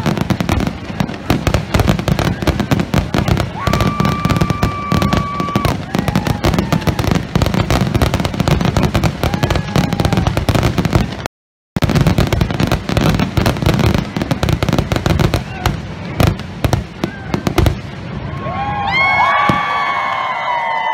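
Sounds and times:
fireworks whistles: 0:00.0 - 0:18.0
fireworks bangs and crackling: 0:00.0 - 0:20.8.

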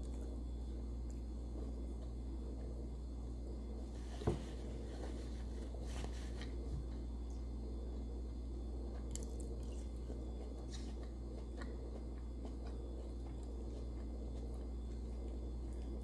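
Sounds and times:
steady low hum: 0:00.0 - 0:16.0
faint chewing: 0:08.7 - 0:16.0.

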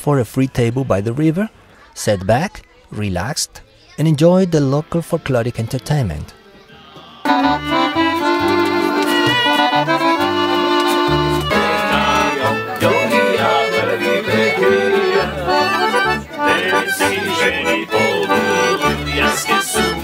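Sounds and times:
accordion folk music: 0:07.2 - 0:20.0.

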